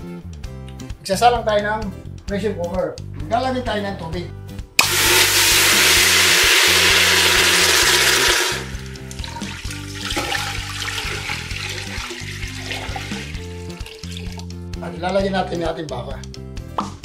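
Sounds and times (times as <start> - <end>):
water pouring and splashing: 4.8 - 14.6.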